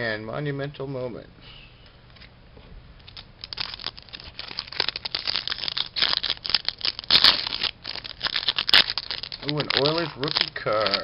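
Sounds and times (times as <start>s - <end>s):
foil wrapper crinkling: 3.0s - 11.0s.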